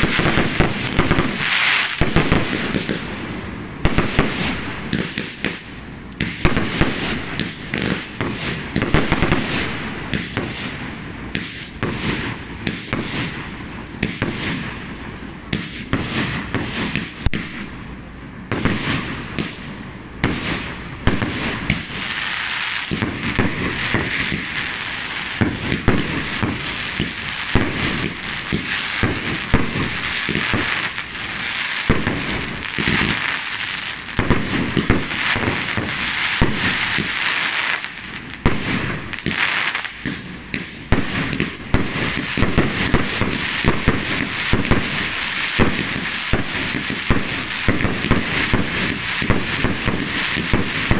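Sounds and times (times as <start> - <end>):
fireworks shells bursting: 0.0 - 3.1, 20.4 - 50.9
fireworks crackle: 0.0 - 50.9.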